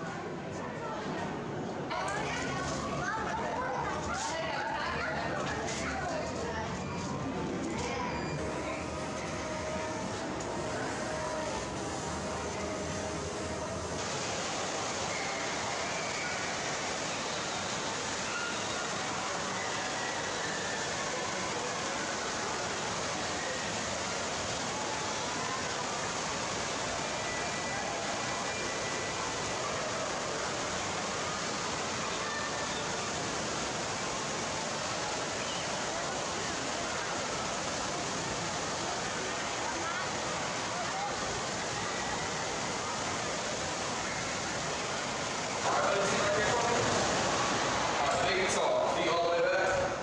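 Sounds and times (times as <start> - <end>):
faint crowd hubbub: 0.0 - 50.0
faint distant voices: 0.0 - 50.0
rushing water din: 8.4 - 50.0.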